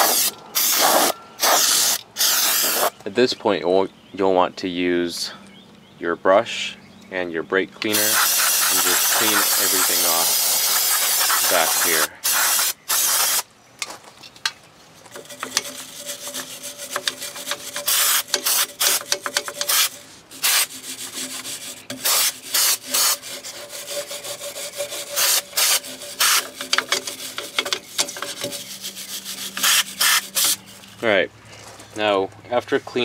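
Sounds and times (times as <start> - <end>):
aerosol spray hissing: 0.0 - 2.9, 7.9 - 13.4, 17.9 - 19.0, 19.7 - 20.7, 25.2 - 26.4, 29.5 - 30.6
stiff brush scrubbing metal: 7.8 - 13.4, 15.0 - 31.0.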